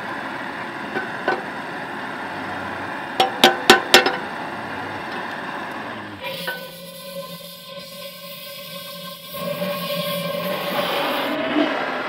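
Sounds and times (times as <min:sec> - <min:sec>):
steel plate clinking: 0:03.2 - 0:04.2, 0:06.2 - 0:11.3.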